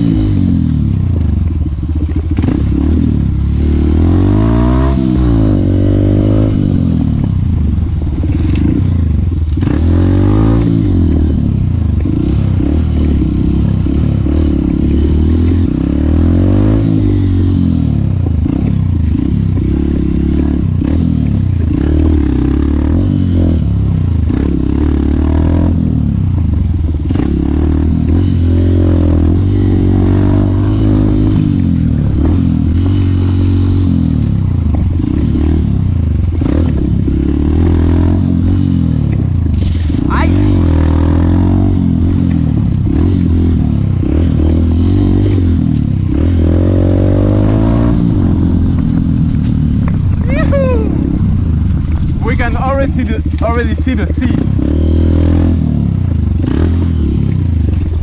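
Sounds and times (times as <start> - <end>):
dirt bike engine revving: 0.0 - 58.0
bike clattering over rough trail: 31.4 - 37.1, 57.2 - 58.0.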